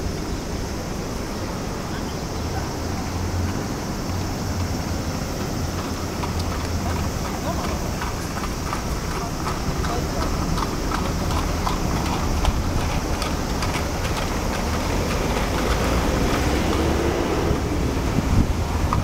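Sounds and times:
street traffic rumble: 0:00.0 - 0:19.0
wind on microphone: 0:11.3 - 0:19.0.

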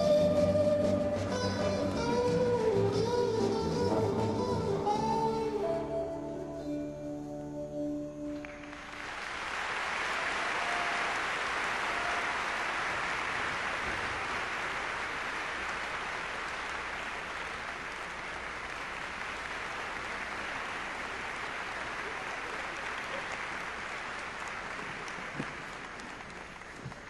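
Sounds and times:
audience applauding: 0:08.4 - 0:27.0.

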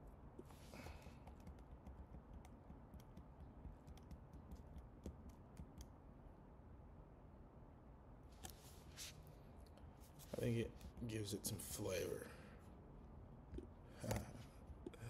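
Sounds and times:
low background hum: 0:00.0 - 0:15.0
computer keyboard typing: 0:01.0 - 0:05.9.

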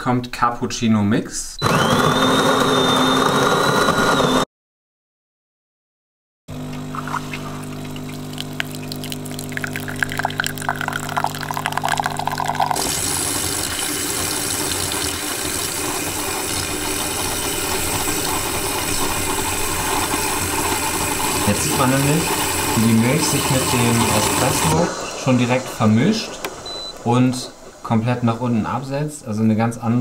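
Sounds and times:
coffee machine humming: 0:01.6 - 0:04.4, 0:06.5 - 0:28.1
milk frother hissing: 0:06.6 - 0:27.4.

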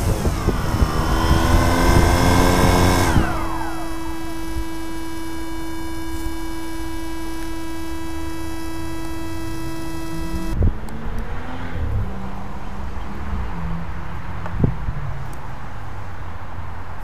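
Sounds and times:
drone electrical hum: 0:00.0 - 0:10.6.

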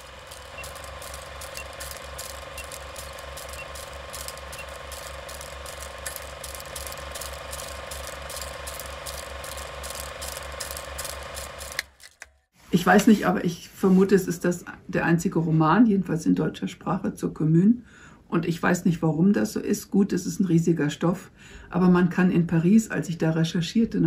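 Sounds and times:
steady hum: 0:00.0 - 0:11.9
ratcheting mechanical clicking: 0:00.0 - 0:12.4.

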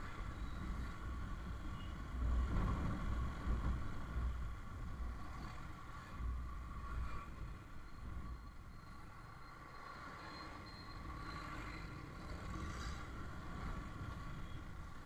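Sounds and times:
wind rumble on microphone: 0:00.0 - 0:08.4.

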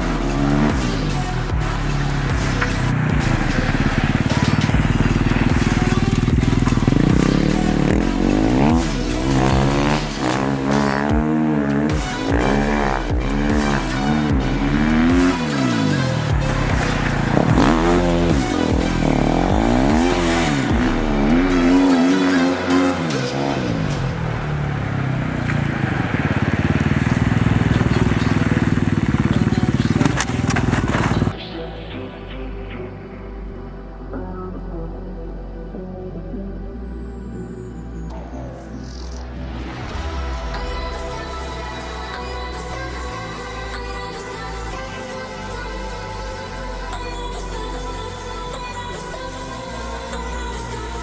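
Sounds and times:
motorcycle engine revving: 0:00.0 - 0:31.4.

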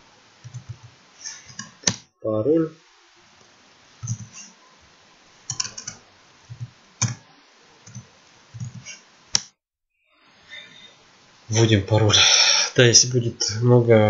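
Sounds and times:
keyboard typing: 0:04.0 - 0:04.5, 0:05.5 - 0:07.2, 0:07.8 - 0:09.5.

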